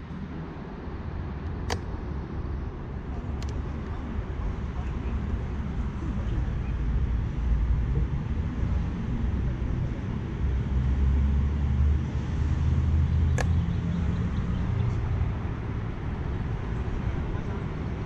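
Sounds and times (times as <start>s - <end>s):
motor vehicle rumbling: 0.0s - 18.0s
sharp click: 1.5s - 2.0s, 13.3s - 13.8s.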